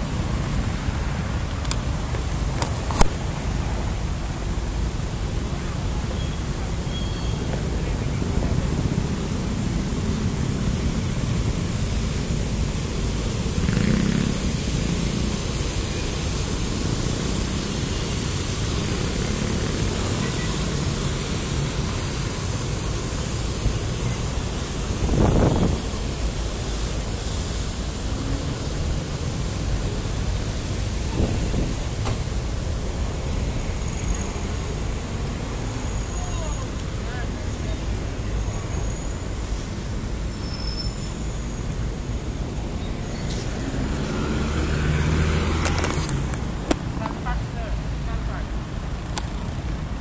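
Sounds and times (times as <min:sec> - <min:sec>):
fountain water jets splashing: 0:00.0 - 0:50.0.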